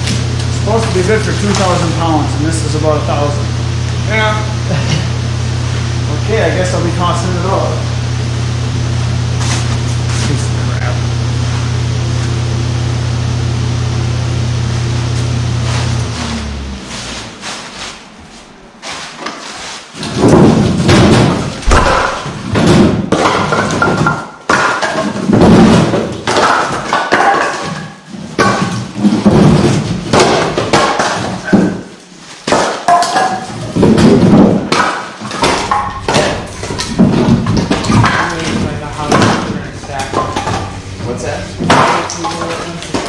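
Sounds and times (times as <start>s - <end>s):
firewood clunking and thudding: 32.5s - 40.9s.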